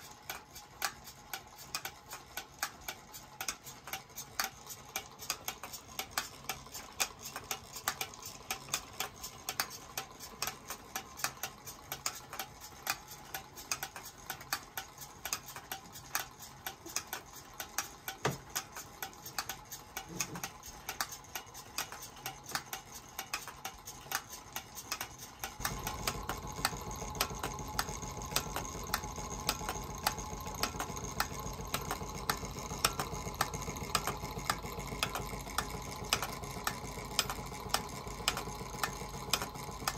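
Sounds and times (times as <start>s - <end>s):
toy steam engine clicking: 0.0s - 39.9s
steady low hum: 25.0s - 39.9s.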